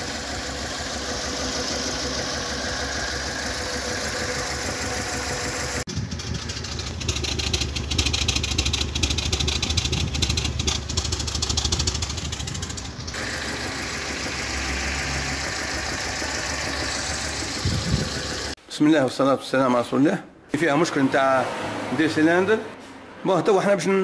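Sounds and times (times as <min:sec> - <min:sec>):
car engine idling with misfire: 0:00.0 - 0:18.6.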